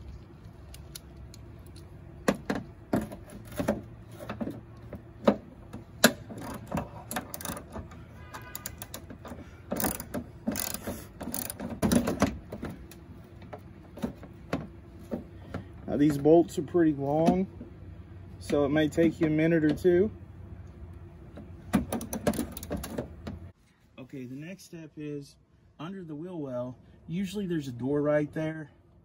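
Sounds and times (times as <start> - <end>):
hand ratchet clicking: 6.0 - 7.9, 8.5 - 12.2, 21.9 - 22.9.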